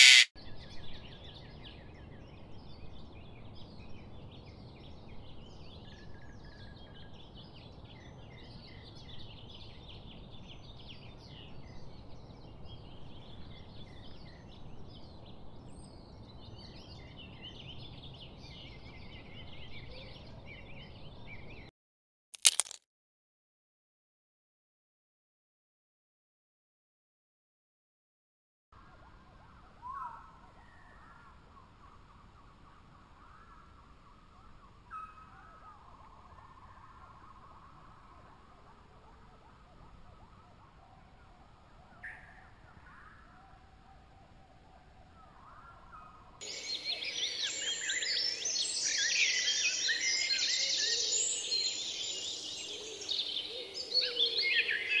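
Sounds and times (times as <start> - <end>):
budgerigar chirping: 0.0 - 0.3
parrots chattering: 0.0 - 0.3.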